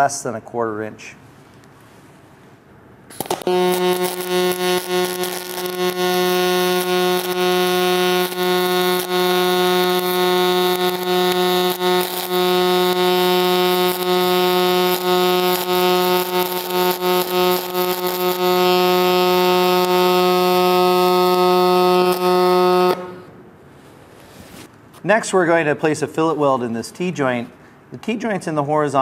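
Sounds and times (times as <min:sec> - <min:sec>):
welding arc crackles: 0:03.1 - 0:23.2
welding arc humming: 0:03.1 - 0:23.4.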